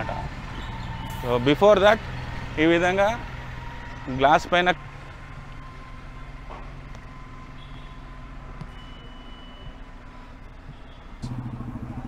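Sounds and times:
loud pulsing engine: 0:00.0 - 0:12.0
vehicle engine running: 0:00.0 - 0:12.0.

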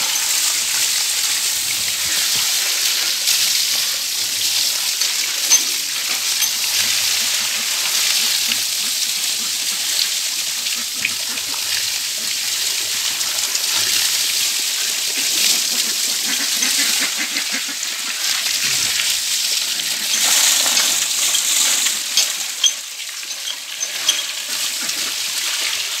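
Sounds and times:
hose water spraying on metal: 0:00.0 - 0:26.0
water splashing: 0:13.1 - 0:26.0.

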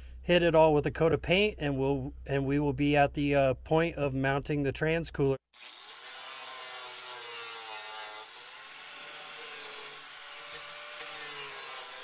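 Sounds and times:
angle grinder grinding steel: 0:05.6 - 0:12.0.

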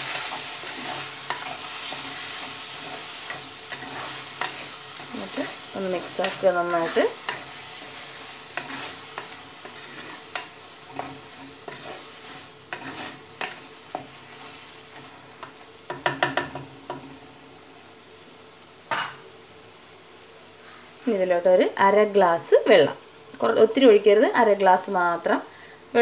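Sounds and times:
faint sizzle of frying: 0:00.0 - 0:26.0
wooden spatula scraping clay pot: 0:00.6 - 0:13.6.

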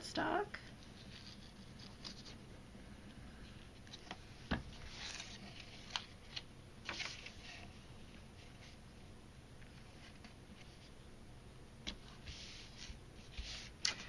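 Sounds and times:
cardstock rustling and sliding: 0:03.9 - 0:07.8.

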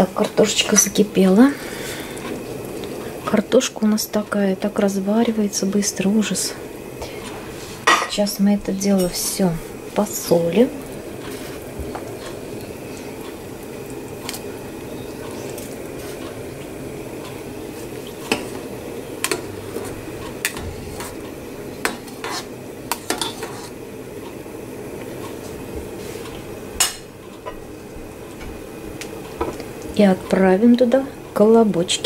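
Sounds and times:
soup bubbling: 0:00.8 - 0:03.3, 0:09.6 - 0:25.8.

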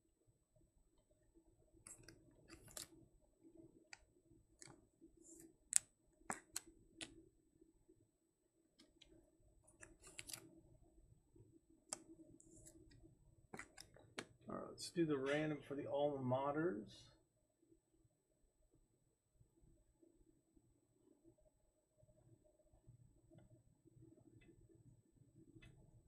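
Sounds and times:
faint steady hum: 0:00.0 - 0:26.0
trading cards clicking and rustling: 0:01.9 - 0:03.0, 0:04.6 - 0:07.2, 0:09.7 - 0:10.5, 0:11.9 - 0:13.0, 0:13.6 - 0:14.4.

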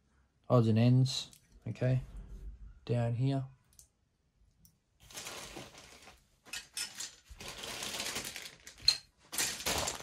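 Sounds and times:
crinkling plastic bags: 0:05.0 - 0:10.0.

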